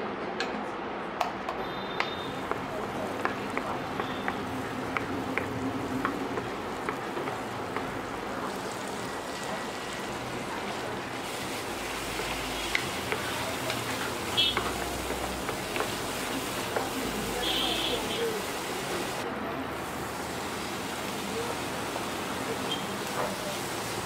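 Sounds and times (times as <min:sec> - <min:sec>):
butter sizzling in a frying pan: 0:02.3 - 0:24.0.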